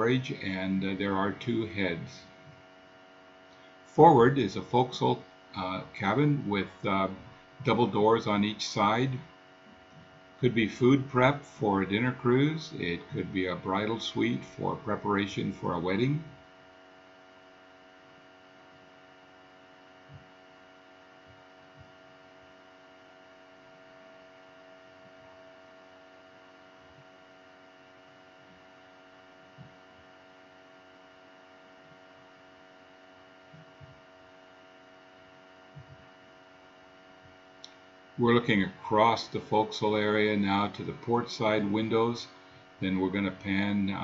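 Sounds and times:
faint electrical hum: 0.0 - 44.0
soft low thumps: 20.0 - 20.4, 33.4 - 34.1, 35.7 - 36.2.

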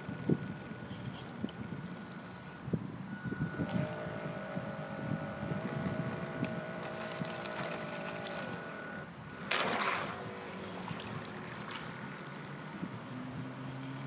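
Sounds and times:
model boat motor whine: 0.0 - 14.0
churning water burst: 3.6 - 12.5.

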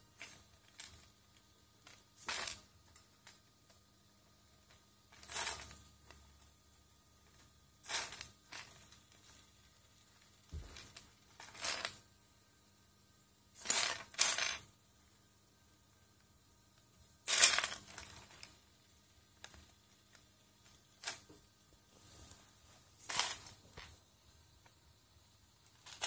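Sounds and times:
plastic bricks clattering: 23.0 - 24.0.

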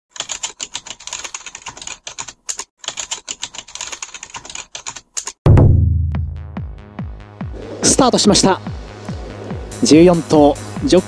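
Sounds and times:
loud deep boom: 5.5 - 6.8.

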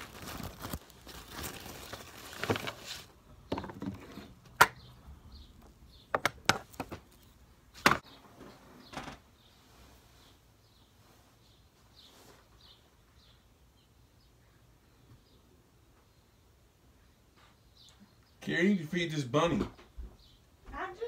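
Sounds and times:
rustling near microphone: 6.6 - 13.3.

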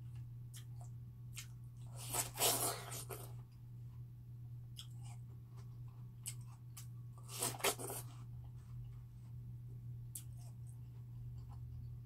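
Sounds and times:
low steady hum: 0.0 - 12.0
watermelon crunching: 0.5 - 3.4, 4.7 - 8.3.

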